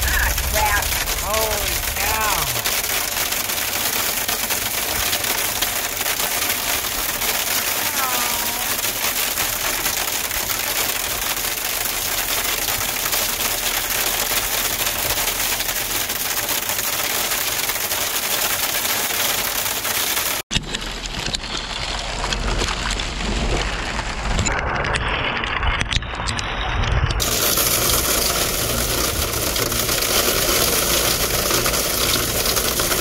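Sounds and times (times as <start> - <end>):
low rumble: 0.0 - 3.8, 20.5 - 32.5
hail and rain pelting down: 0.0 - 26.4, 27.2 - 33.0.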